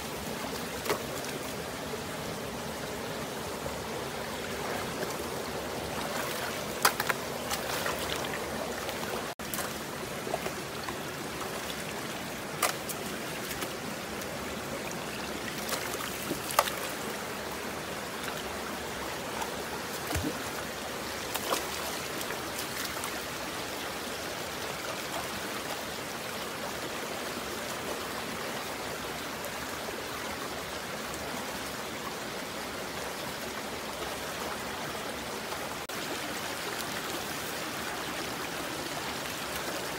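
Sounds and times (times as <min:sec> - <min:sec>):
stream flowing and trickling: 0:00.0 - 0:39.9
sharp clicks and splashes: 0:06.0 - 0:13.8, 0:15.5 - 0:17.1, 0:19.4 - 0:20.5, 0:21.2 - 0:23.1.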